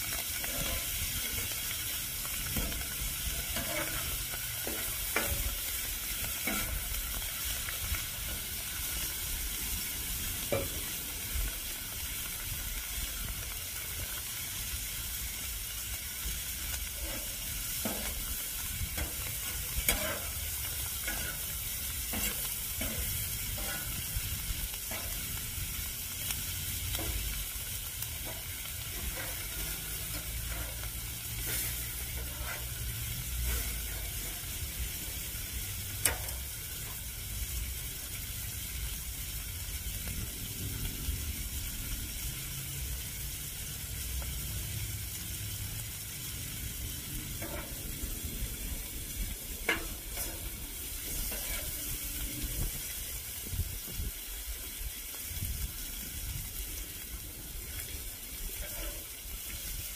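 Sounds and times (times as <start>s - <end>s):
shrimp sizzling on griddle: 0.0s - 59.9s
spatula scraping and tapping griddle: 0.1s - 9.2s, 9.8s - 11.0s, 16.7s - 35.3s, 36.0s - 37.1s, 47.3s - 48.2s, 49.6s - 52.8s, 58.5s - 59.7s.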